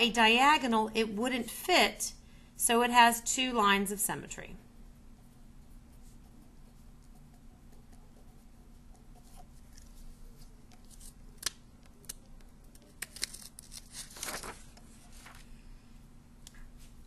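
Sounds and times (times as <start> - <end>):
marker scratching on paper: 5.2 - 10.0.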